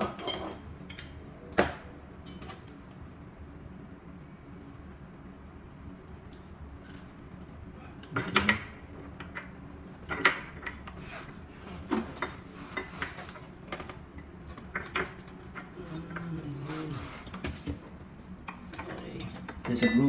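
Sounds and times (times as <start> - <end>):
clicks and clacks of fan parts: 6.2 - 11.0, 11.9 - 16.4, 18.4 - 20.0.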